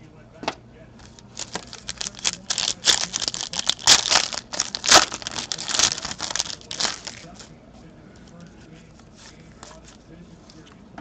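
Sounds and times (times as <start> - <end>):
foil wrapper tearing and crinkling: 1.0 - 7.4.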